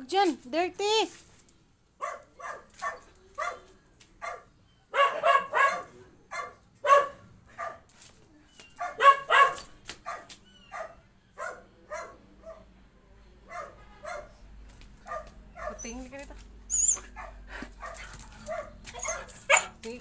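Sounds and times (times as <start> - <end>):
dog barking: 2.0 - 7.9, 8.8 - 12.7, 13.5 - 14.4, 15.0 - 15.9, 17.0 - 19.8.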